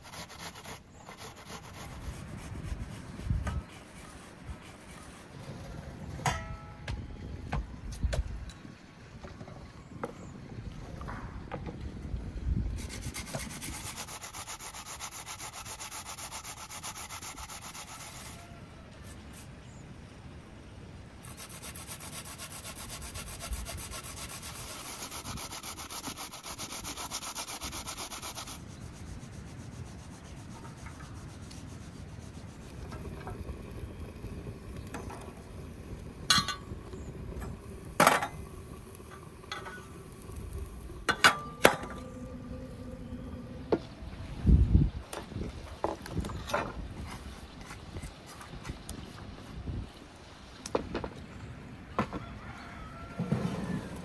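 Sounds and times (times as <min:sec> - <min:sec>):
potato rasping on a grater: 0:12.8 - 0:18.5, 0:21.3 - 0:33.2.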